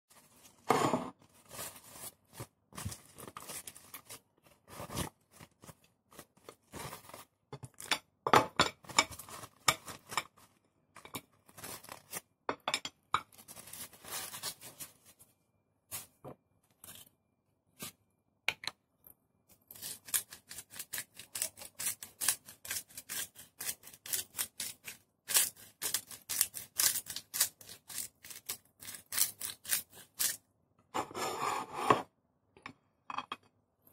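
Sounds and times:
plastic wrap crinkling: 0:00.1 - 0:07.8, 0:11.3 - 0:12.4, 0:13.3 - 0:17.1.

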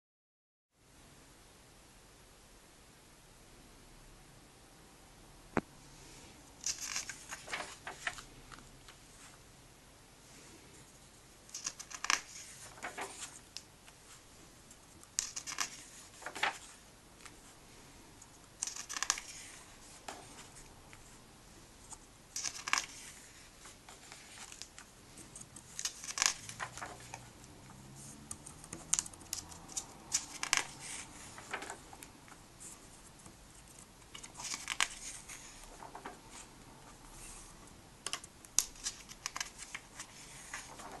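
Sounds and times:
comic book pages turning: 0:06.6 - 0:09.3, 0:11.5 - 0:14.2, 0:15.1 - 0:17.4, 0:18.6 - 0:21.1, 0:21.9 - 0:37.5, 0:38.1 - 0:41.0.

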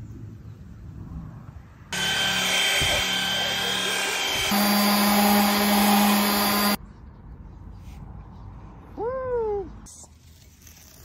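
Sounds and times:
orbital sander humming: 0:01.9 - 0:06.8
rotary tool whine: 0:01.9 - 0:06.8.

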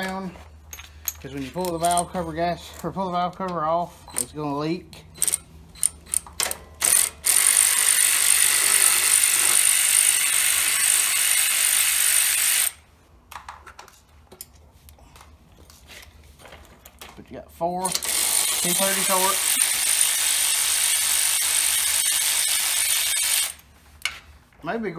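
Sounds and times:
electric ratchet running: 0:05.2 - 0:12.8, 0:17.9 - 0:23.6.

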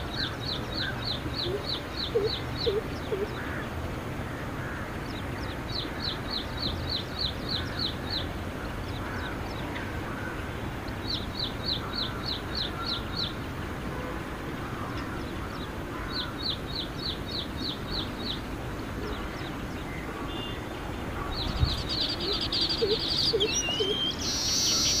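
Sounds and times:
bird chirps: 0:19.0 - 0:25.0.

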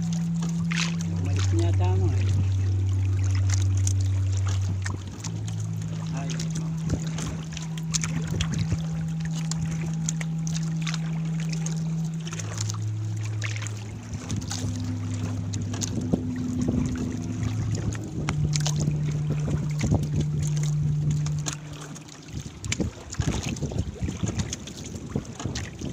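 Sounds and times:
knocks and clicks against hull: 0:00.0 - 0:25.9
steady low drone: 0:00.0 - 0:25.9
water dripping and splashing: 0:00.0 - 0:25.9.

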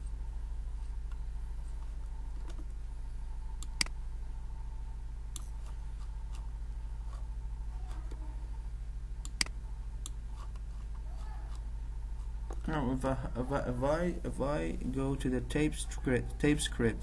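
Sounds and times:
low electrical hum: 0:00.0 - 0:17.0
computer mouse clicking: 0:03.6 - 0:04.0, 0:09.2 - 0:10.6.

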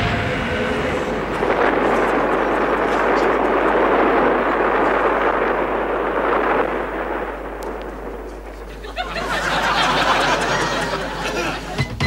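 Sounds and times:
explosion rush: 0:00.0 - 0:11.8
music: 0:11.7 - 0:12.0.

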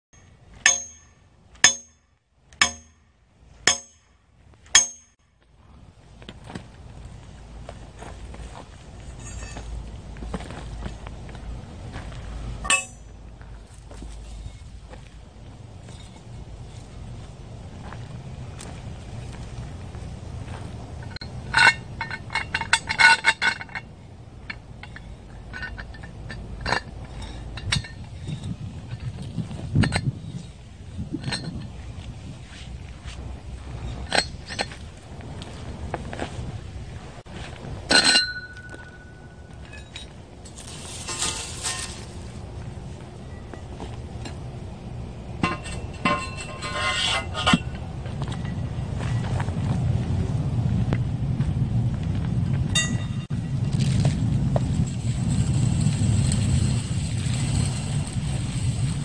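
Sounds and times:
hammer clanging on steel stake: 0:00.2 - 0:05.3, 0:12.6 - 0:13.1, 0:37.9 - 0:42.2, 0:45.4 - 0:48.6, 0:52.8 - 0:53.3
sharp metal strikes: 0:00.2 - 0:05.3, 0:12.6 - 0:13.1
metal parts clinking: 0:21.1 - 0:31.8, 0:37.9 - 0:42.5, 0:45.4 - 0:47.8.

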